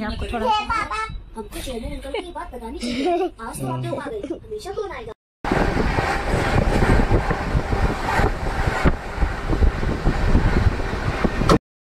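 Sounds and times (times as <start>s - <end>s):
vehicle rumble: 5.5s - 11.6s
wind buffeting microphone: 5.5s - 11.6s.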